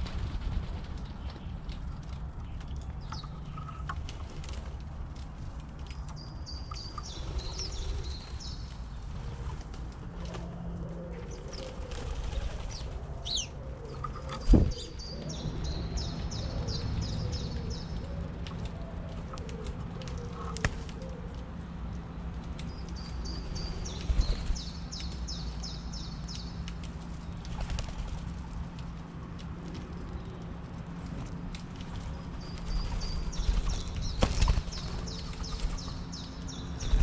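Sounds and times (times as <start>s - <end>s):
dove wings flapping: 0.0s - 2.3s, 11.4s - 13.2s, 18.2s - 21.5s, 26.8s - 29.1s, 31.5s - 36.1s
songbird chirping: 32.0s - 37.0s.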